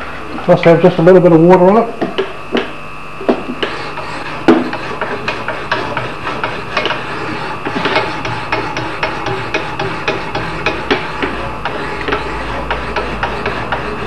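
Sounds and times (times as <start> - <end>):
honing block rubbing axe edge: 3.3 - 14.0.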